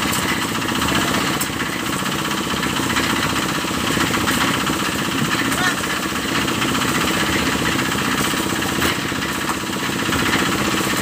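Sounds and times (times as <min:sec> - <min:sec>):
concrete mixer engine running: 0:00.0 - 0:11.0.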